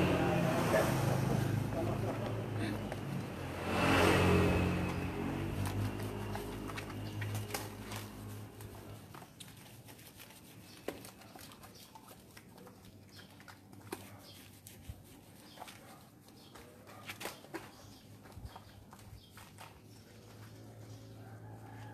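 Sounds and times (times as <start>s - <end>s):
passing vehicle engine hum: 0.0s - 9.0s
soapy water dripping on concrete: 0.0s - 21.9s.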